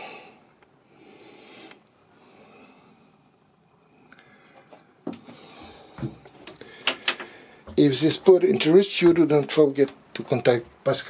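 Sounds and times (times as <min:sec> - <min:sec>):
faint breaths: 0:00.0 - 0:07.8.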